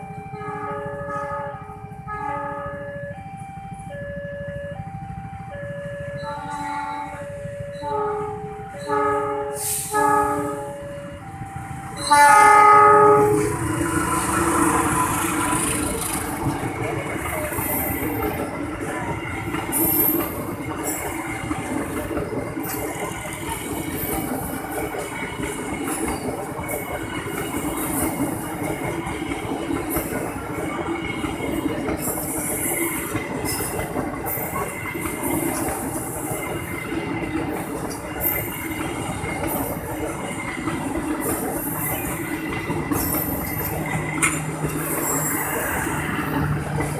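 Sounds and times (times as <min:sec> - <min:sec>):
locomotive horn chord: 0:00.4 - 0:02.9, 0:07.8 - 0:10.9, 0:12.0 - 0:15.2
train wheels clattering on rails: 0:06.0 - 0:46.9.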